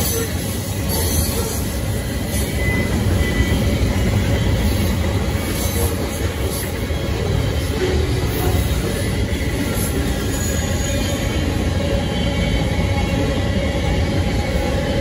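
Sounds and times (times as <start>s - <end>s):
train wheels rumbling on track: 0.0s - 15.0s.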